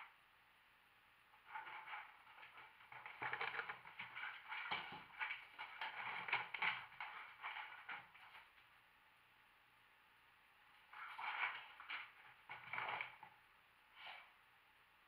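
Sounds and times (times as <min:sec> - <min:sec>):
dog claws scratching on floor: 0:01.4 - 0:08.6, 0:10.8 - 0:13.4.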